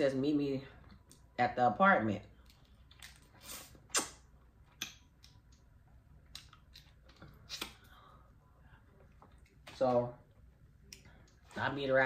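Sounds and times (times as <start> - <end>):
wet mouth clicks and smacks: 2.4 - 7.9.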